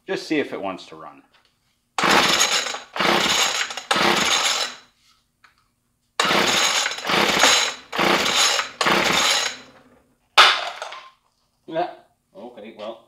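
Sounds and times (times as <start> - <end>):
recoil cord pull-start: 2.0 - 4.8, 6.2 - 9.9.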